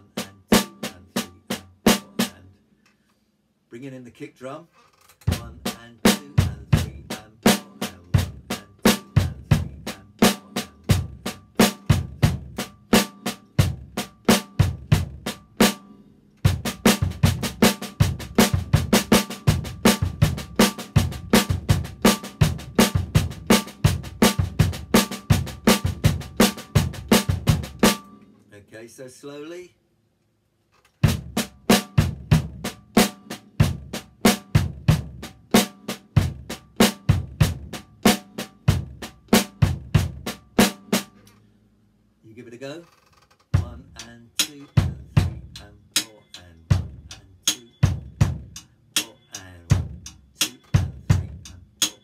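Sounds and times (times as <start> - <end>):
bass drum kick: 5.3 - 7.2, 8.2 - 10.0, 10.8 - 12.8, 13.6 - 15.4, 16.5 - 28.0, 31.0 - 40.5, 43.6 - 44.0, 44.7 - 45.6, 46.7 - 47.2, 47.8 - 48.6, 49.7 - 50.1, 50.7 - 51.5
snare drum struck with sticks: 16.5 - 28.2, 46.8 - 52.0.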